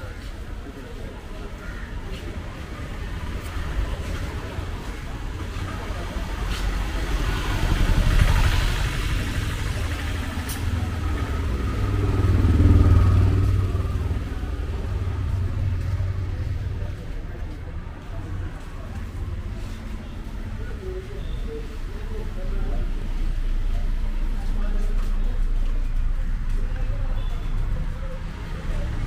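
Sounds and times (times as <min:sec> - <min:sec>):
vehicle engines rumbling past: 0:00.0 - 0:29.0.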